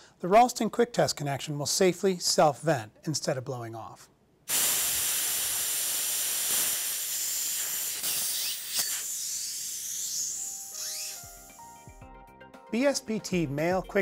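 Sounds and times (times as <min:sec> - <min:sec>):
pressurised air hissing: 0:04.5 - 0:11.7
small click: 0:08.1 - 0:09.0.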